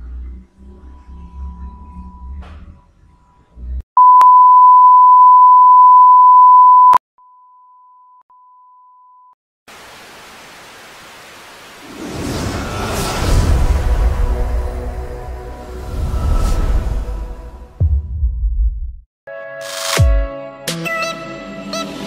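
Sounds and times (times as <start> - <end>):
television test tone beep: 4.0 - 9.3.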